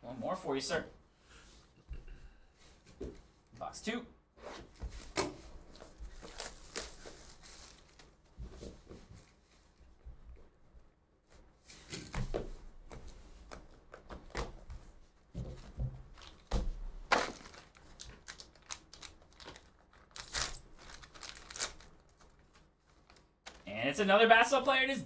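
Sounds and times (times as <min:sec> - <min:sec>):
plastic wrapping crinkling: 0:05.7 - 0:08.2, 0:16.1 - 0:23.6
cardboard seal tearing: 0:06.1 - 0:08.0, 0:17.1 - 0:22.1.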